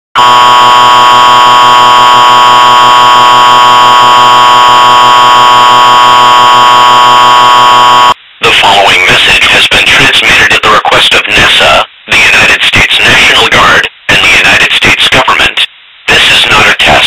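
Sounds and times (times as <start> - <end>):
emergency alert alarm tone: 0.2 - 8.2.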